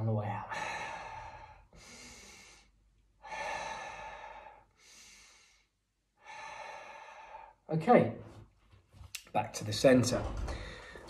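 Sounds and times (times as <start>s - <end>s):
man breathing slowly: 0.5s - 7.7s, 10.4s - 11.0s.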